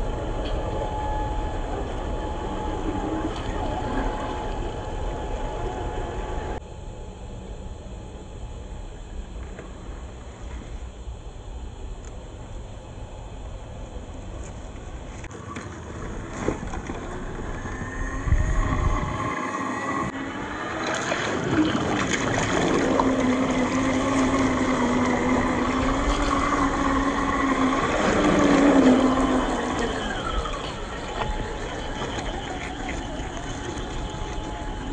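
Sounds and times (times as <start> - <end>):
running gear rough noise: 14.2 - 34.9
electric motor whining: 16.1 - 34.9.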